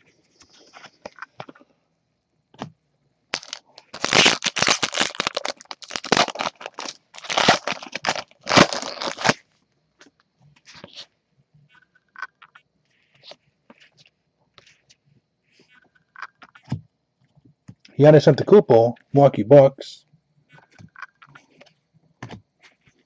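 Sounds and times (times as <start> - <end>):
wrapper tearing and crinkling: 3.3 - 9.4.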